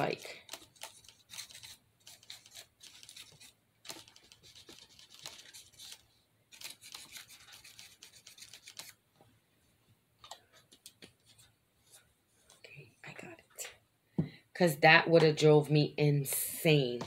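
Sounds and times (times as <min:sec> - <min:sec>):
paintbrush scratching and dabbing: 0:06.6 - 0:09.0.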